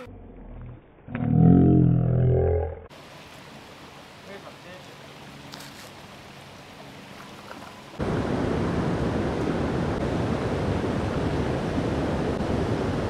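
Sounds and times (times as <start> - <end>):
creek water rushing: 2.9 - 13.0.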